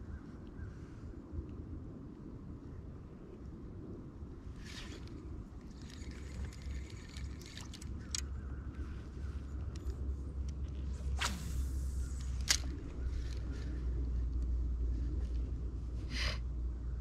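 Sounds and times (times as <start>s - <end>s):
low steady rumble: 0.0s - 17.0s
fishing reel being cranked: 4.6s - 8.2s.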